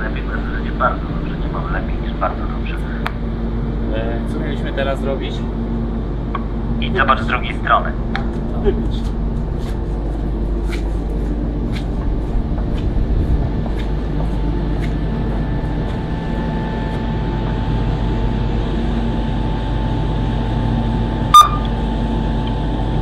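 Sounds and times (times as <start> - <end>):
ferry machinery drone: 0.0 - 23.0
brief beep: 21.3 - 21.7.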